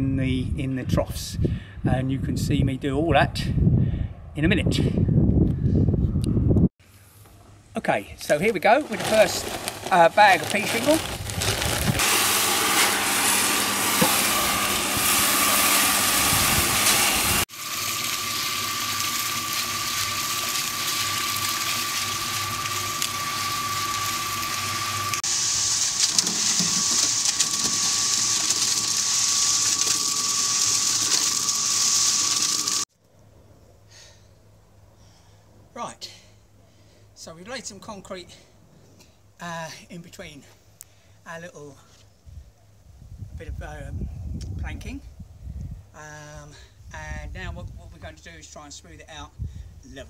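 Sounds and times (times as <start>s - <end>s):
cement mixer running: 8.6s - 32.9s.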